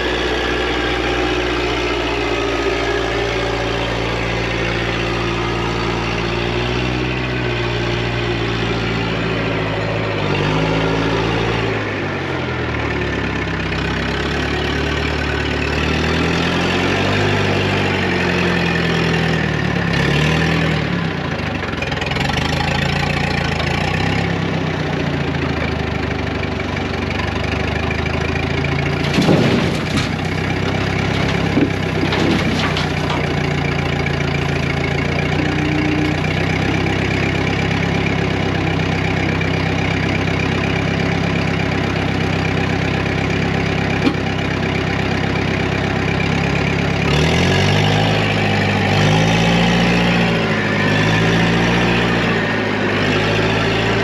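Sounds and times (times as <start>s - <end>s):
loader engine working: 0.0s - 54.0s
sharp clunks: 29.0s - 33.7s, 44.0s - 44.4s.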